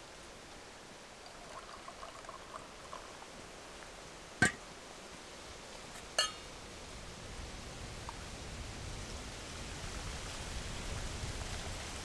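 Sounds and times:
tea pouring into metal mug: 1.2 - 3.2
metal knock of teapot set down: 6.2 - 6.4
ringing metal clink: 6.2 - 6.4.

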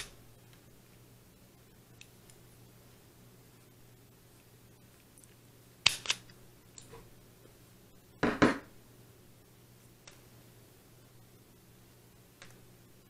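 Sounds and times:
faint steady hum: 0.0 - 13.0
small objects clicking and snapping: 5.0 - 6.9.

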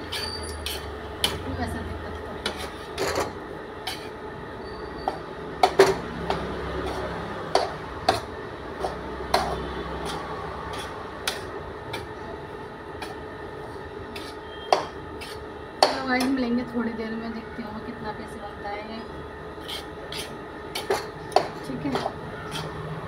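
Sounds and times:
metal spatula scraping flour: 0.0 - 1.4, 2.4 - 5.2, 6.3 - 12.2, 13.0 - 16.4, 19.6 - 23.0
steady hum: 0.0 - 23.0.

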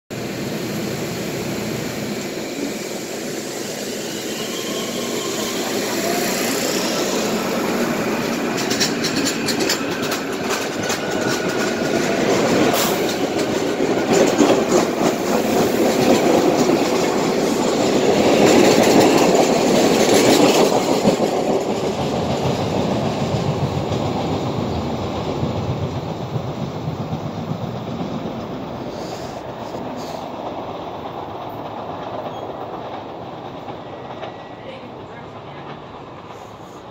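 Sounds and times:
train rumble passing: 0.1 - 36.9.

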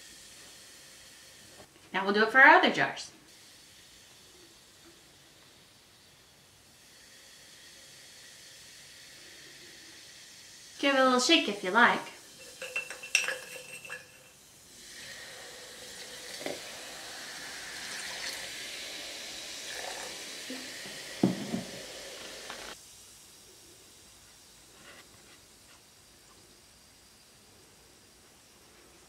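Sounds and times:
fizzing hiss: 0.0 - 1.7, 3.2 - 29.0
candy cane clinking in glass jar: 12.3 - 14.4.

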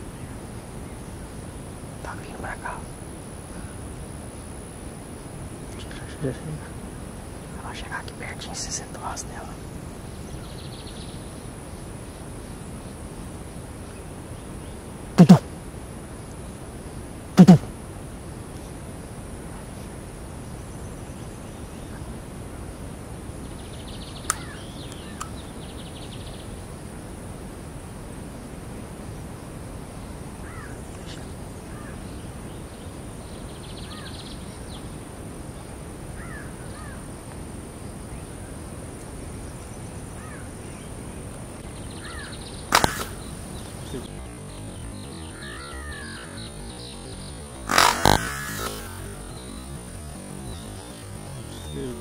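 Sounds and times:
background hiss: 0.0 - 52.0
faint high whine: 0.0 - 52.0
small click: 24.2 - 25.4, 42.7 - 43.2
bird chirps: 41.6 - 52.0
loud sharp crack: 42.7 - 43.7, 47.5 - 51.4.

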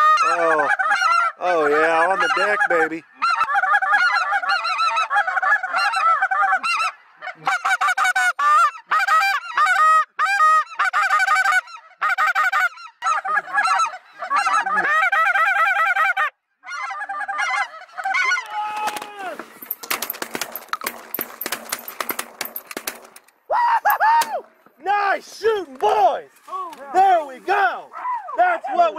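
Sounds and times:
geese honking: 0.0 - 23.2.

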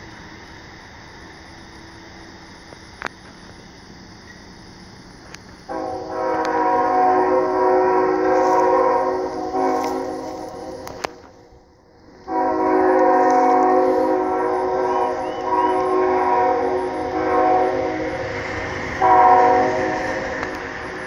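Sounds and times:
locomotive air horn blasts: 5.7 - 11.4, 12.0 - 21.0.

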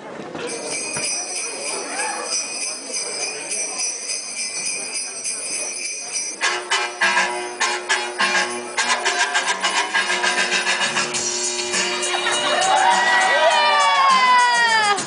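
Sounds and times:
sleigh bells jingling: 0.5 - 11.4.

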